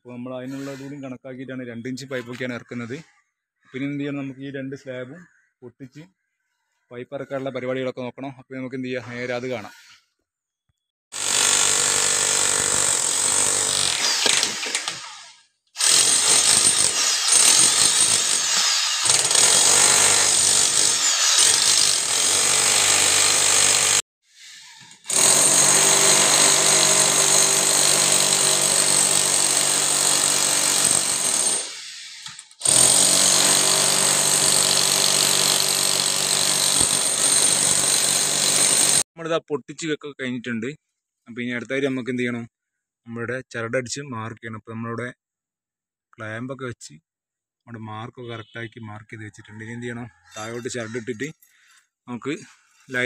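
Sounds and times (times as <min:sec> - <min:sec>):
demolition hammer chipping concrete: 0:15.8 - 0:24.0, 0:25.1 - 0:31.7, 0:32.6 - 0:39.0.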